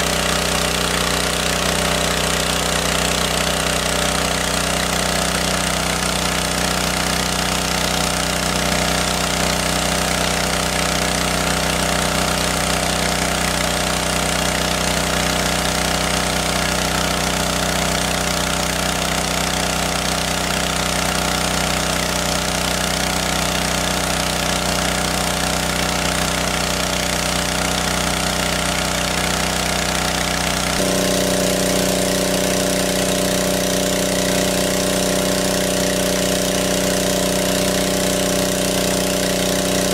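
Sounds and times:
engine-driven water pump running: 0.0s - 39.9s.

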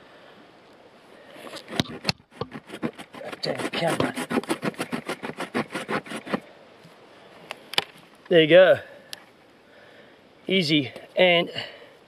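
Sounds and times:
knife sawing through wood: 1.5s - 6.4s.

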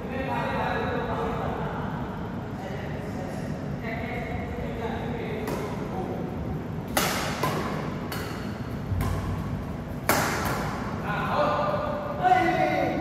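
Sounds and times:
rackets striking shuttlecock: 5.4s - 6.0s, 6.8s - 11.0s.

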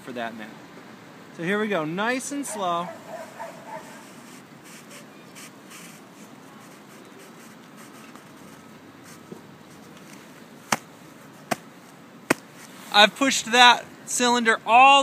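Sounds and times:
soft crunching of snow: 3.1s - 13.2s.

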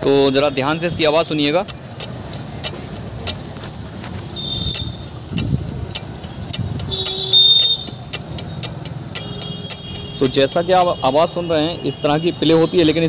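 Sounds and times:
metallic clicks and knocks of flywheel: 1.2s - 11.4s.

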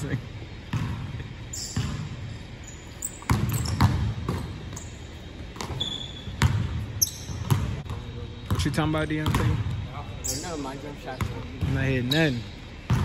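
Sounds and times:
sneakers squeaking on floor: 0.4s - 13.0s
basketball bouncing on hardwood floor: 0.7s - 1.1s, 3.2s - 4.8s, 5.6s - 9.8s.

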